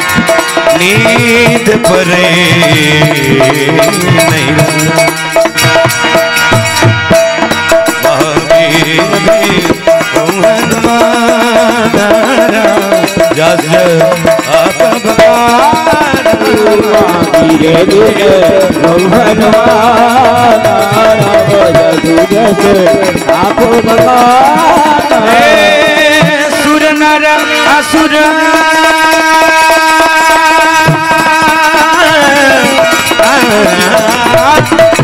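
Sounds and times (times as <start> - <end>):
dholak drum rhythm: 0.0 - 35.0
held keyboard tone: 0.0 - 35.0
wordless sung melody: 0.0 - 35.0.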